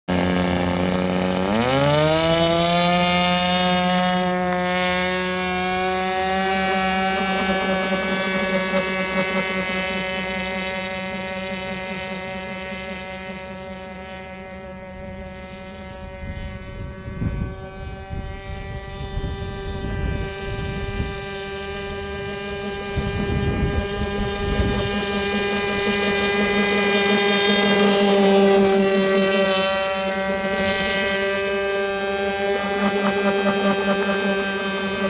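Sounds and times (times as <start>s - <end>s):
model boat engine and propeller: 0.1s - 35.0s
wind rumble on microphone: 14.8s - 35.0s.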